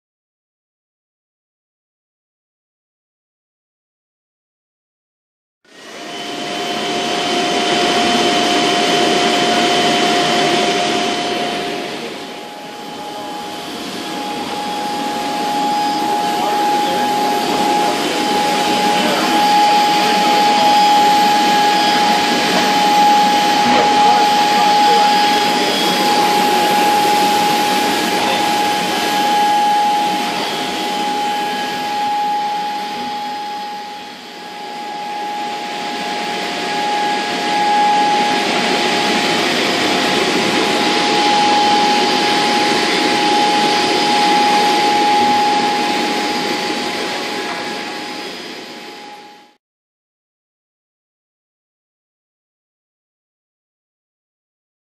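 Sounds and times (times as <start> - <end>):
router spindle cutting sheet: 5.7 - 49.2
industrial vacuum running: 5.7 - 49.6.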